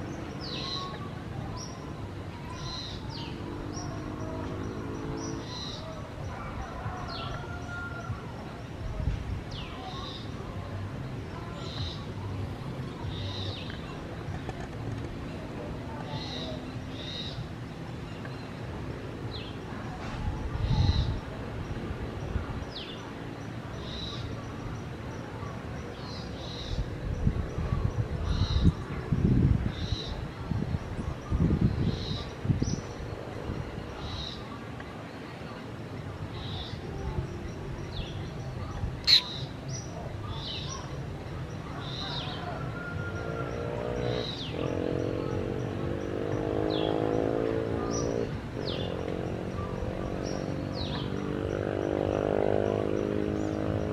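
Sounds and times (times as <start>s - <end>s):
high-pitched animal calls: 39.0s - 39.5s.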